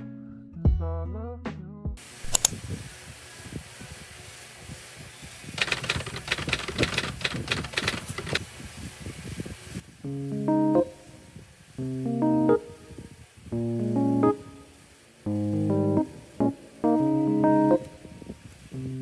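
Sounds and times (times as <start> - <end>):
sharp clicks and rattles: 5.6 - 8.4.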